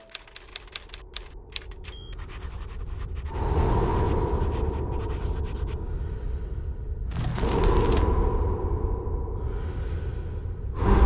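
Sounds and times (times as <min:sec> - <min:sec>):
typewriter keystroke clicks: 0:00.0 - 0:02.1.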